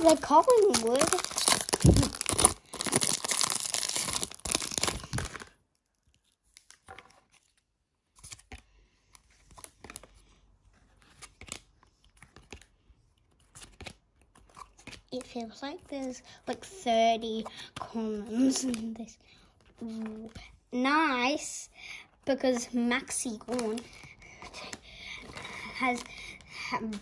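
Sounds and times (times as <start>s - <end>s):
foil wrapper tearing and crinkling: 0.0s - 5.9s.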